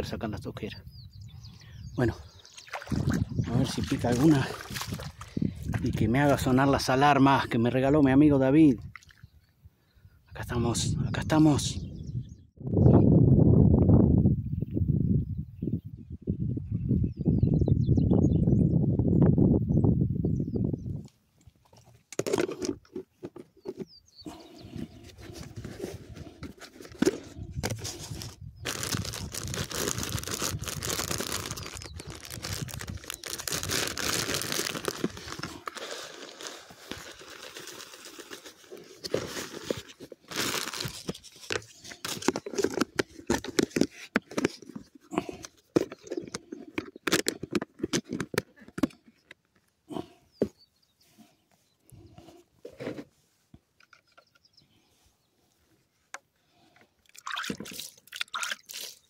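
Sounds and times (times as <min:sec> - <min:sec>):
plastic bag rustling and crinkling: 0:25.0 - 0:46.2.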